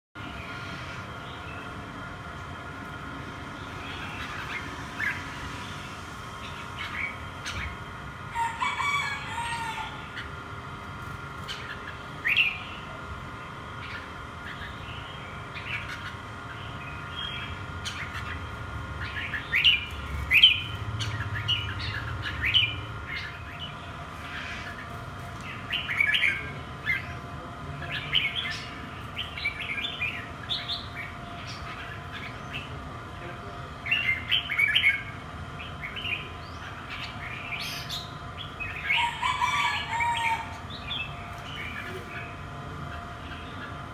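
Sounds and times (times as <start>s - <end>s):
birds chirping and chattering: 0.2s - 43.9s.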